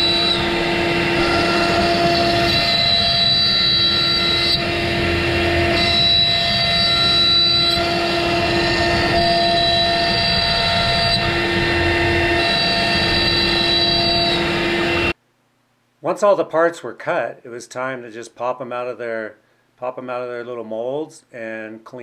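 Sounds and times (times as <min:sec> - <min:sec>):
router spindle cutting wood: 0:00.0 - 0:15.2.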